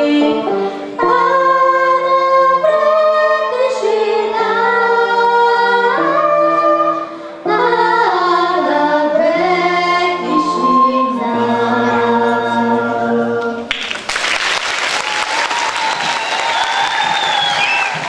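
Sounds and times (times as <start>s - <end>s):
girl and woman singing: 0.0s - 13.6s
audience applause: 13.7s - 18.0s.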